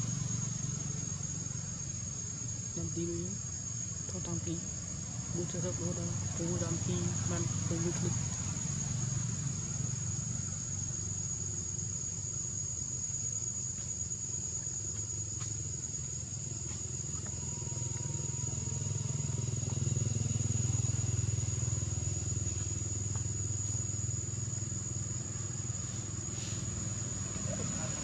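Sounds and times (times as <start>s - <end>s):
low engine rumble: 0.0s - 12.7s, 16.0s - 28.0s
high-pitched insect drone: 0.0s - 28.0s.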